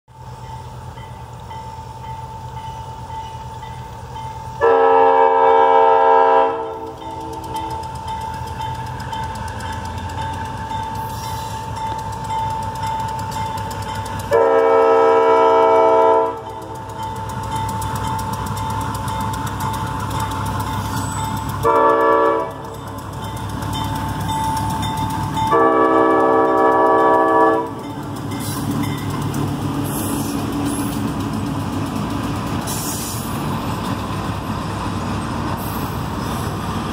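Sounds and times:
freight cars rolling past: 0.1s - 36.9s
locomotive engine rumble: 0.1s - 36.9s
locomotive horn blasts: 4.6s - 7.7s, 14.3s - 16.8s, 21.6s - 22.7s, 25.5s - 27.8s.

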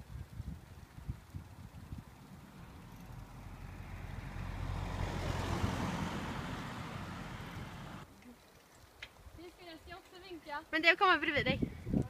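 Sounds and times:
car overtaking: 2.4s - 8.1s.

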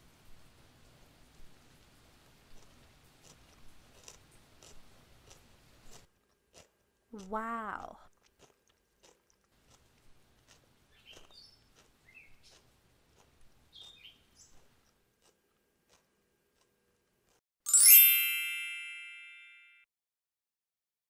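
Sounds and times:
short high notes: 17.7s - 19.6s
bright chime effect: 17.7s - 19.8s.

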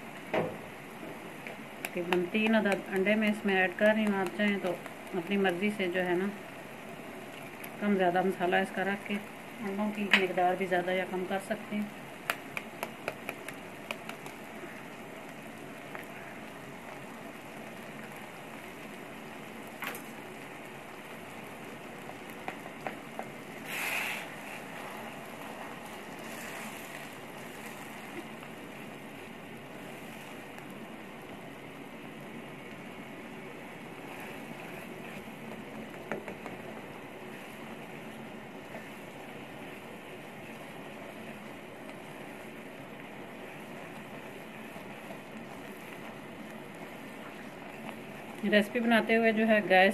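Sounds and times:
food sizzling in frying pan: 0.0s - 49.9s
spatula stirring and tapping: 1.0s - 6.0s, 12.1s - 14.6s, 22.0s - 23.5s, 34.0s - 49.7s.

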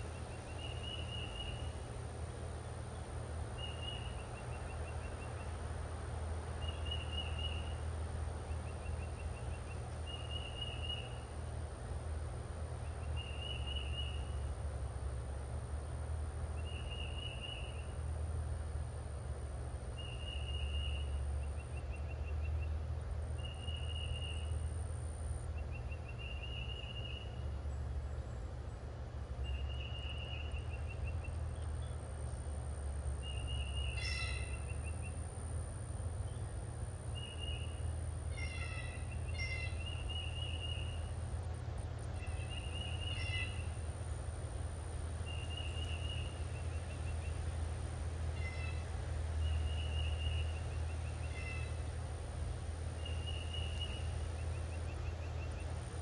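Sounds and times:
high trilled call: 33.4s - 35.2s, 37.2s - 41.0s, 48.4s - 48.9s.

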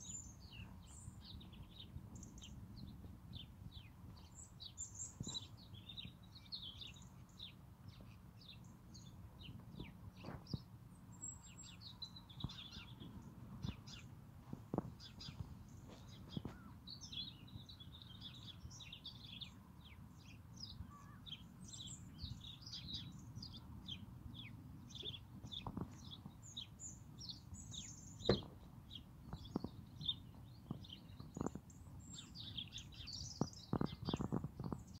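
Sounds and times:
small birds chirping: 0.0s - 35.0s
sharp knocks: 28.3s - 28.6s.

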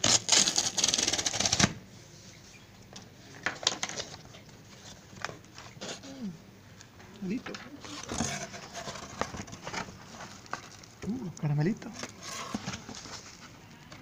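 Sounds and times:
cardboard tear strip ripping: 0.0s - 1.8s
cardboard flap rustling: 7.7s - 11.0s, 11.9s - 14.0s.

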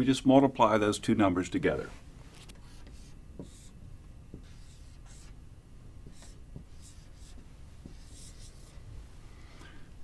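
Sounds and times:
marker scratching on whiteboard: 2.4s - 5.4s, 6.0s - 8.8s.

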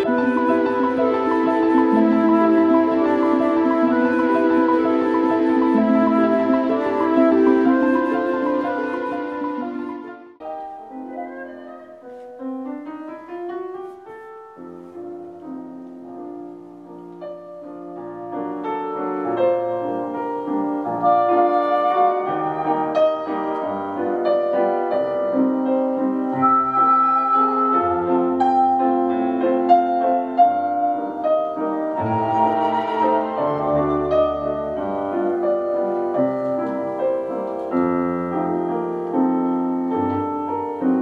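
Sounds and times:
flutes: 0.0s - 12.6s, 18.6s - 41.0s
classical piano with orchestra: 0.0s - 41.0s.

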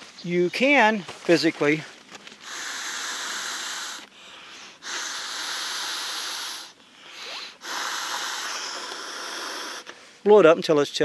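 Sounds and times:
person blowing air into valve: 2.4s - 4.0s, 4.7s - 10.0s.

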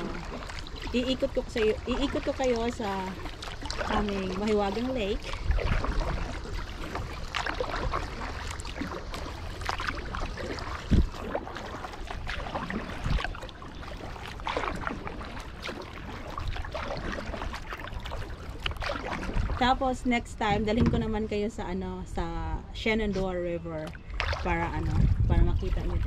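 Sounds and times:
paddle splashing and dripping: 0.0s - 22.0s, 22.9s - 26.0s
low rumble: 18.7s - 26.0s
short thump: 20.7s - 21.3s.

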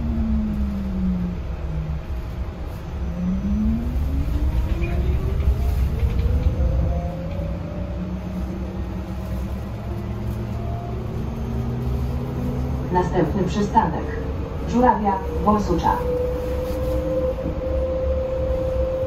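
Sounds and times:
electric bus motor whine: 0.0s - 19.0s
low road rumble: 0.0s - 19.0s.

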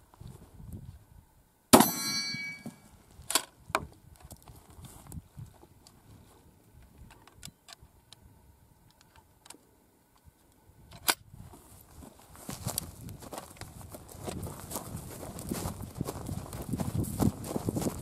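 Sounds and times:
scuffing noise: 11.5s - 18.0s.

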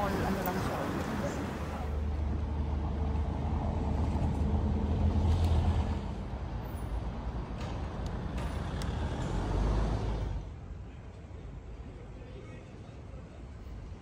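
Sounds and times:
road noise: 0.0s - 14.0s
vehicle engines rumbling: 0.0s - 14.0s.

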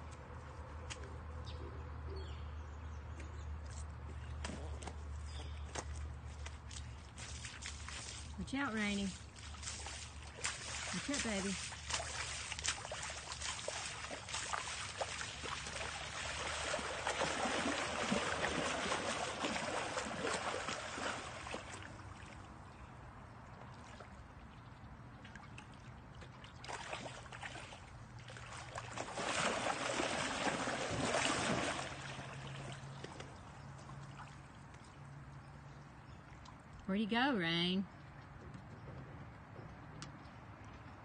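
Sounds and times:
dog splashing through water: 5.7s - 22.5s, 26.2s - 34.7s.

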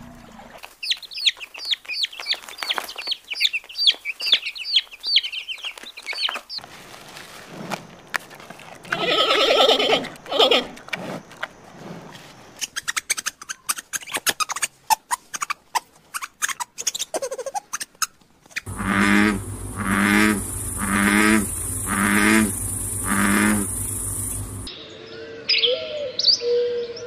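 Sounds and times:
raspy animal calls: 8.9s - 10.8s, 18.6s - 24.7s
rapid clicks and chirps: 16.2s - 24.7s
frog croaking: 18.7s - 24.7s.

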